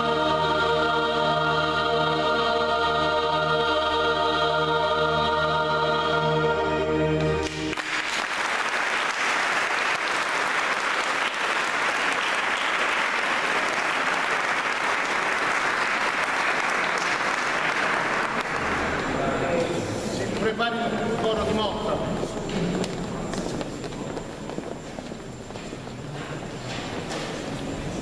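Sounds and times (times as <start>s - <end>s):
choir singing a chord: 0.0s - 8.6s, 10.2s - 20.2s
audience applause: 7.5s - 19.5s.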